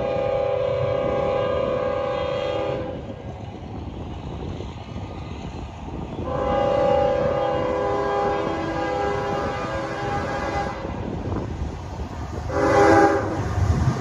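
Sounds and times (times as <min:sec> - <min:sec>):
locomotive air horn blasts: 0:00.0 - 0:03.1, 0:06.2 - 0:11.1, 0:12.5 - 0:13.5.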